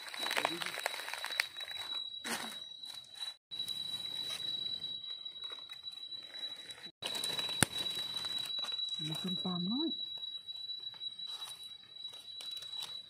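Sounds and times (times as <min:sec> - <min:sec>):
dry leaves rustling: 0:00.0 - 0:02.5, 0:07.0 - 0:09.4.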